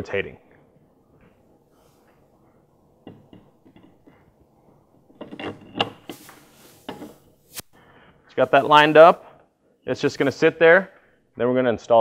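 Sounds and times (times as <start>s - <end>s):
metal clinks and scrapes: 5.1s - 7.6s.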